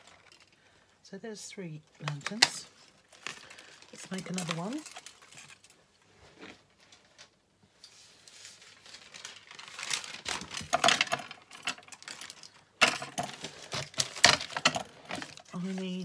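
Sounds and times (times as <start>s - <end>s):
paper rustling: 6.8s - 16.0s.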